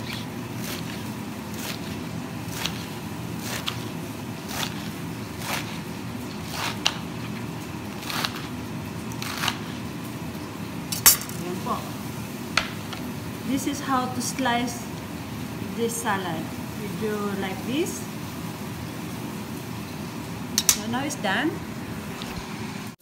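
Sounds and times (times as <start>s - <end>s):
knife chopping lettuce on board: 0.0s - 9.8s.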